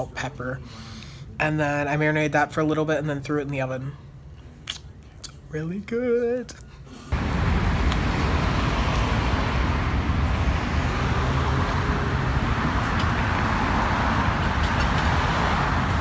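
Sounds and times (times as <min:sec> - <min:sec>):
nearer car passing: 0:07.1 - 0:16.0
road traffic passing: 0:07.1 - 0:16.0.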